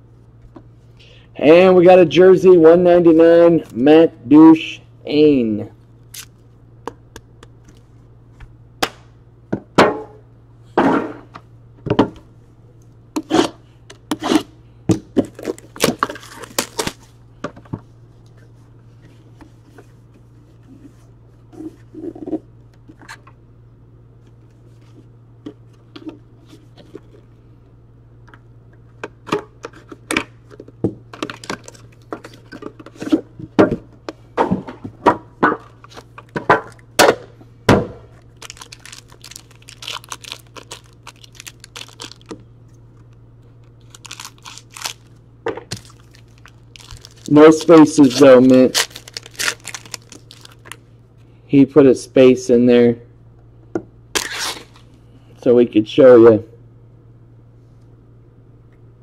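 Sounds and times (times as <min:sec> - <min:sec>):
steady low hum: 0:00.0 - 0:59.0
hands tapping packaging: 0:38.4 - 0:42.4, 0:45.7 - 0:50.8.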